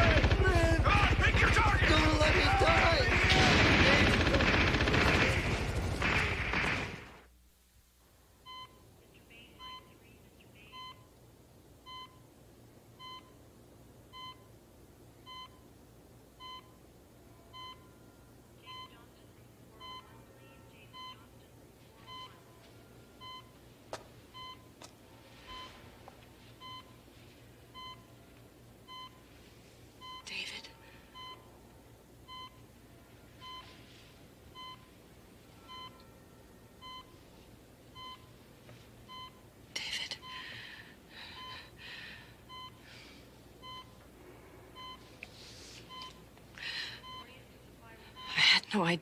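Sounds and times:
loud burst of noise: 0:00.0 - 0:07.3
faint low hum: 0:00.0 - 0:49.0
heart monitor beeping: 0:08.4 - 0:08.9, 0:09.6 - 0:10.0, 0:10.7 - 0:11.2, 0:11.8 - 0:12.3, 0:13.0 - 0:13.4, 0:14.1 - 0:14.5, 0:15.2 - 0:15.7, 0:16.4 - 0:16.8, 0:17.5 - 0:19.0, 0:20.9 - 0:21.2, 0:22.0 - 0:23.6, 0:24.3 - 0:24.8, 0:25.4 - 0:25.9, 0:26.5 - 0:27.1, 0:27.7 - 0:29.3, 0:30.0 - 0:30.3, 0:31.1 - 0:31.6, 0:32.2 - 0:32.7, 0:33.4 - 0:36.2, 0:36.8 - 0:37.3, 0:37.9 - 0:39.5, 0:40.2 - 0:41.8, 0:42.4 - 0:42.9, 0:43.6 - 0:44.1, 0:44.7 - 0:45.2, 0:45.9 - 0:46.3, 0:46.9 - 0:47.3.

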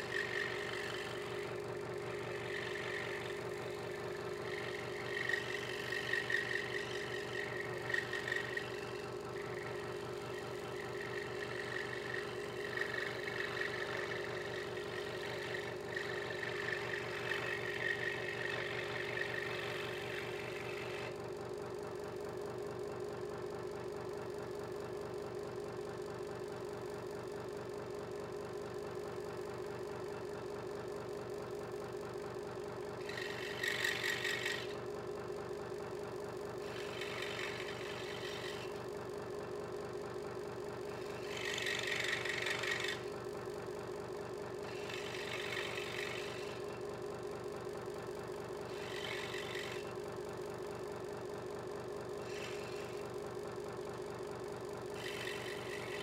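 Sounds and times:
saw blade cutting wood: 0:00.0 - 0:21.2, 0:32.8 - 0:34.9, 0:36.3 - 0:38.9, 0:40.7 - 0:43.2, 0:44.5 - 0:46.9, 0:48.3 - 0:50.1, 0:52.2 - 0:53.2, 0:54.8 - 0:56.0
scroll saw motor hum: 0:00.0 - 0:56.0.

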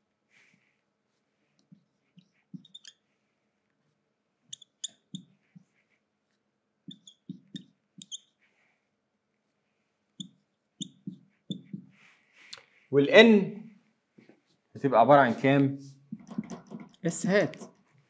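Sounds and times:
marker pen squeaking on whiteboard: 0:01.7 - 0:03.2, 0:04.5 - 0:06.0, 0:06.8 - 0:08.6, 0:10.2 - 0:12.2, 0:16.1 - 0:17.0
marker pen tapping on whiteboard: 0:02.6 - 0:02.9, 0:06.9 - 0:08.2, 0:10.2 - 0:12.0, 0:16.1 - 0:17.0.

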